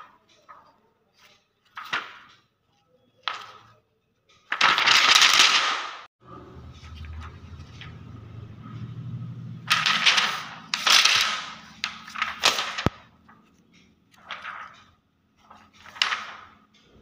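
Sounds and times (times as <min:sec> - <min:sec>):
plastic film crackling: 0:04.4 - 0:05.9, 0:09.7 - 0:13.5, 0:14.1 - 0:16.6.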